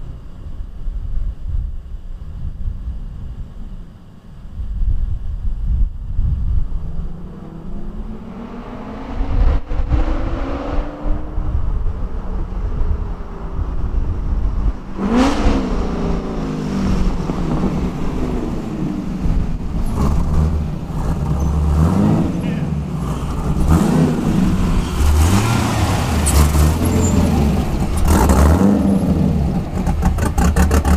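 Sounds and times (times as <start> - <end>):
wind on microphone: 0.0 - 22.4
car engine accelerating: 6.3 - 30.9.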